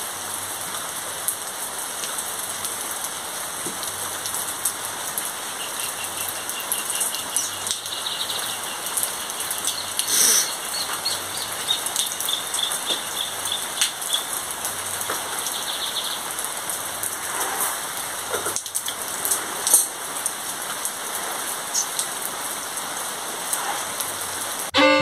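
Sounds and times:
rain falling on leaves: 0:00.0 - 0:24.8
water drips: 0:00.6 - 0:24.8
bird chirping: 0:05.2 - 0:16.5.

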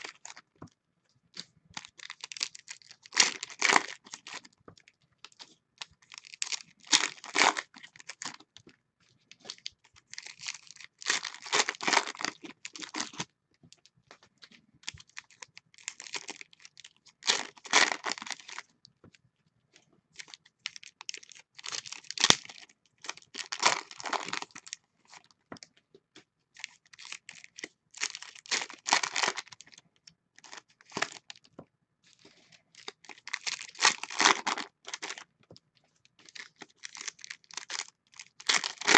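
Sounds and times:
foil wrappers tearing and crinkling: 0:01.8 - 0:04.5, 0:09.6 - 0:13.2, 0:15.1 - 0:18.6, 0:20.2 - 0:24.8, 0:26.6 - 0:29.6, 0:32.8 - 0:35.2, 0:36.3 - 0:38.9.

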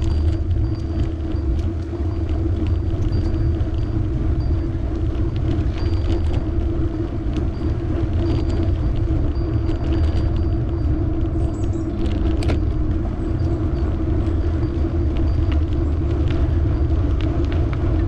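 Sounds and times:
bicycle tyres rumbling on road: 0:00.0 - 0:18.0
light clicks and rattles: 0:00.0 - 0:18.0
wind on microphone: 0:00.0 - 0:18.0.

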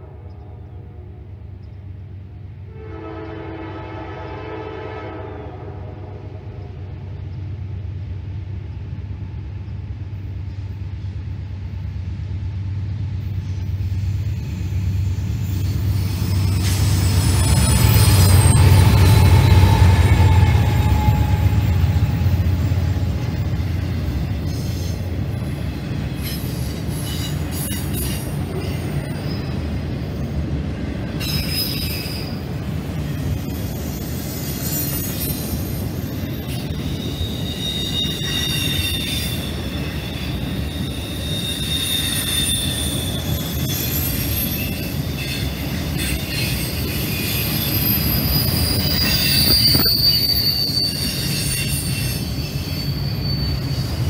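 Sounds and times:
train horn blowing: 0:00.0 - 0:01.4, 0:02.6 - 0:07.0, 0:17.8 - 0:22.9
diesel locomotive engines: 0:00.0 - 0:54.0
wheels squealing on rail: 0:13.3 - 0:54.0.

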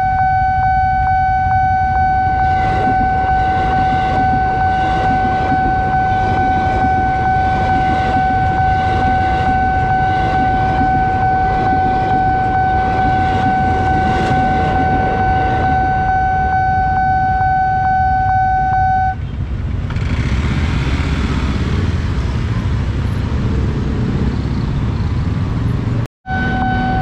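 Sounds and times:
level crossing alarm ticking: 0:00.0 - 0:19.2
electric train passing: 0:00.0 - 0:27.0
motorcycle and car traffic: 0:19.1 - 0:27.0.

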